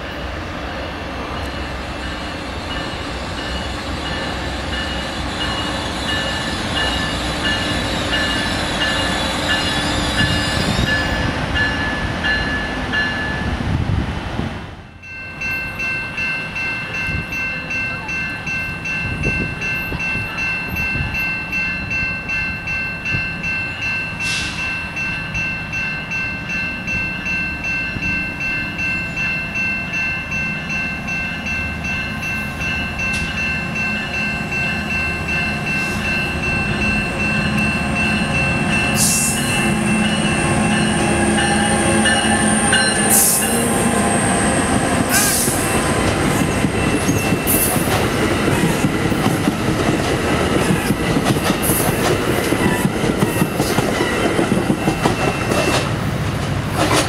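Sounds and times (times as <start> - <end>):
train rumble: 0.0 - 57.0
level-crossing bell ringing: 15.0 - 44.8.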